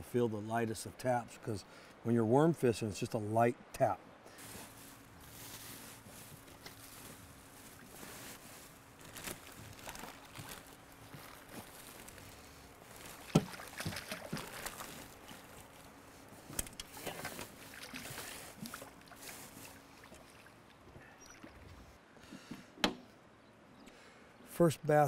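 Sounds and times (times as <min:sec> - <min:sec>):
fish splashing in water: 0:11.4 - 0:16.0, 0:16.8 - 0:21.6.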